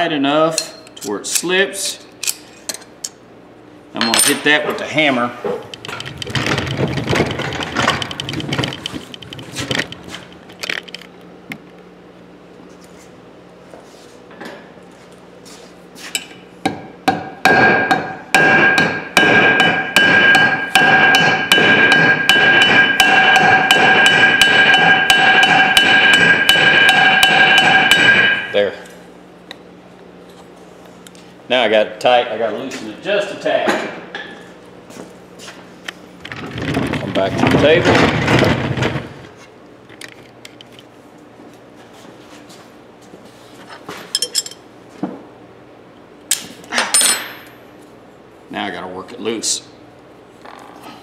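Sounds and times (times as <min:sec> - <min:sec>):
hammer tapping on metal: 0:16.6 - 0:28.5.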